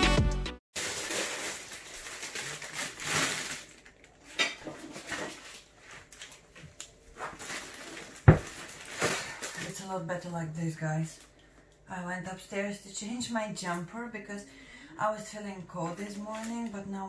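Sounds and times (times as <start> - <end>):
crinkly packet rustling: 0.8 - 10.0, 15.8 - 16.8.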